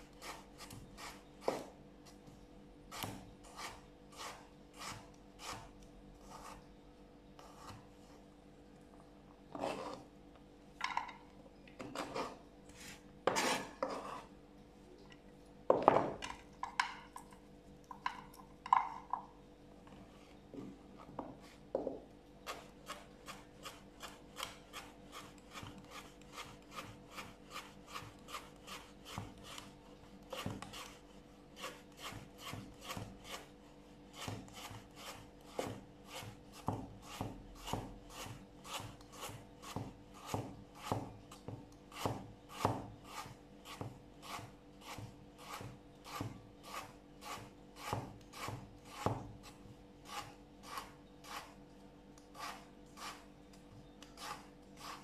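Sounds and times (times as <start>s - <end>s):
knife cutting on cutting board: 11.8s - 14.3s, 41.9s - 51.6s, 52.3s - 53.3s, 54.2s - 55.0s.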